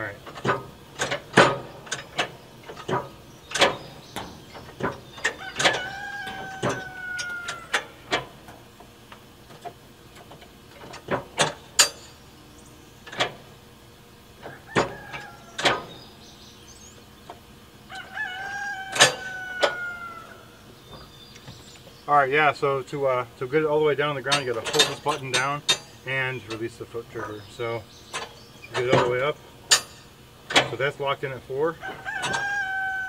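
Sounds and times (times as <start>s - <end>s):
rooster crowing: 5.3s - 8.1s, 14.4s - 15.9s, 17.8s - 20.7s, 31.8s - 33.0s.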